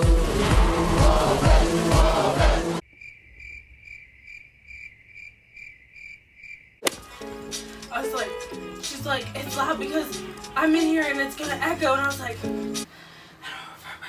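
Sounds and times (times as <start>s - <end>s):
pop music with heavy beat: 0.0s - 2.8s
cricket chirping: 2.8s - 7.6s.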